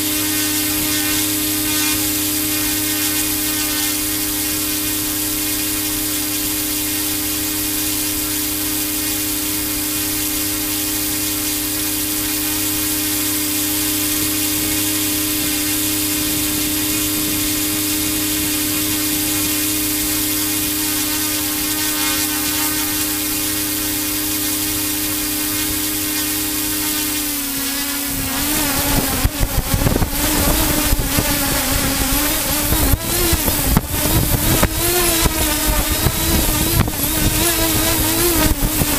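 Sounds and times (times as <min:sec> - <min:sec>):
model aircraft motor whine: 0:00.0 - 0:38.9
wind buffeting microphone: 0:28.0 - 0:38.9.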